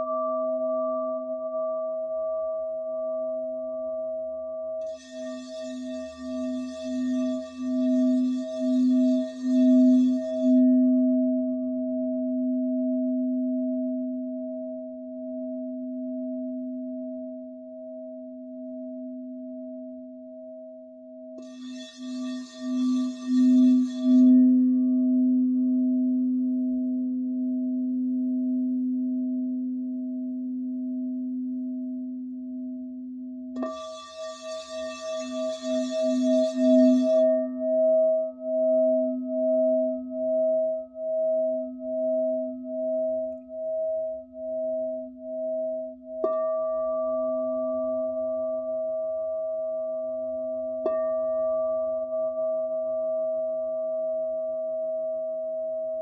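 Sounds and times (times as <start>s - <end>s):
singing bowl tone: 0.0s - 56.0s
wand rubbing bowl rim: 33.7s - 37.4s.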